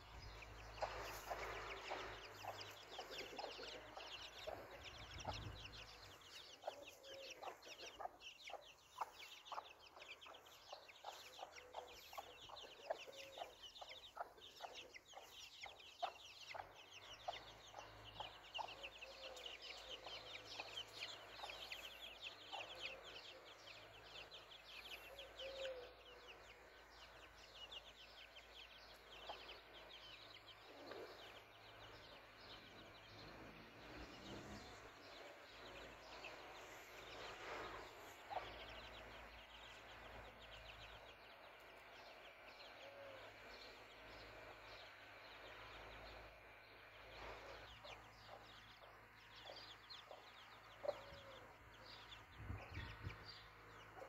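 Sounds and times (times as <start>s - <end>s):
chicks peeping: 0.0s - 42.9s, 43.5s - 54.0s
hen clucking: 0.3s - 23.1s.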